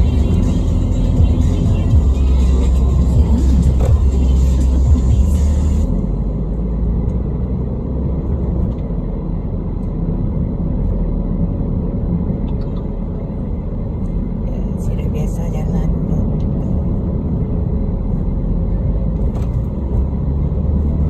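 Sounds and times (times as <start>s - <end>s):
background music: 0.0s - 5.9s
car driving on highway rumble: 0.0s - 21.0s.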